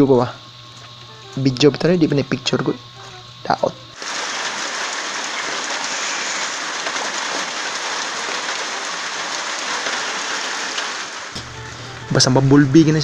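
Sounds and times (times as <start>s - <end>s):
water pouring into plastic drum: 4.0s - 11.4s
rain: 4.0s - 11.6s.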